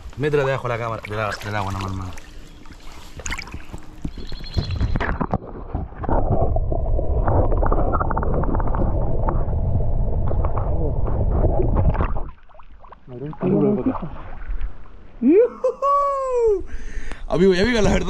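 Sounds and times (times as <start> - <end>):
stream water splashing: 0.0 - 6.4, 11.8 - 15.1
muffled underwater current rushing: 0.0 - 15.0.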